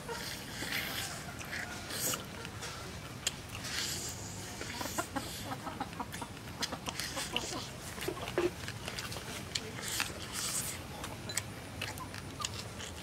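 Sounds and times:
chickens clucking: 0:00.0 - 0:09.1
crunchy chewing: 0:00.0 - 0:13.0.

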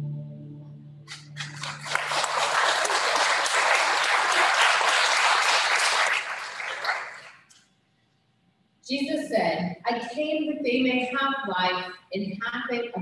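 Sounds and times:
crowd applauding: 0:01.1 - 0:07.4.

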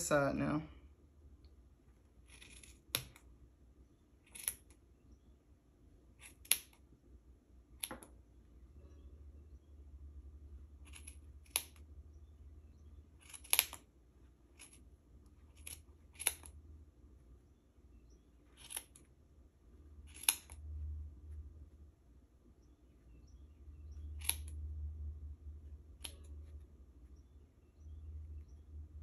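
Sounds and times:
low steady hum: 0:00.0 - 0:29.0
scissors snipping yarn: 0:04.2 - 0:04.8, 0:06.2 - 0:06.8, 0:10.8 - 0:11.8, 0:13.2 - 0:13.9, 0:15.4 - 0:16.6, 0:20.1 - 0:20.6, 0:24.2 - 0:24.6, 0:25.9 - 0:26.4.

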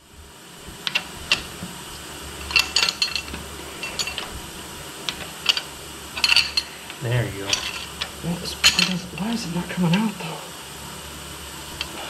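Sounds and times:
metal tools clinking on engine: 0:02.4 - 0:04.3, 0:05.1 - 0:06.8, 0:07.5 - 0:10.1.

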